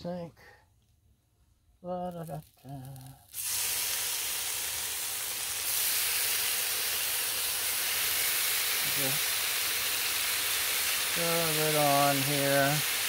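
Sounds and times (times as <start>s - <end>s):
meat sizzling on a griddle: 2.7s - 13.0s.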